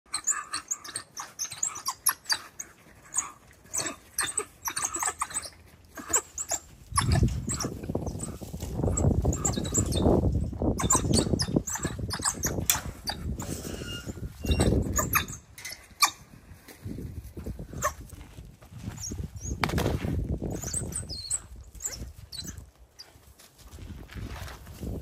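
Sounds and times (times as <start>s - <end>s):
wild dogs twittering: 0.1s - 10.2s, 10.8s - 13.4s, 14.4s - 16.2s.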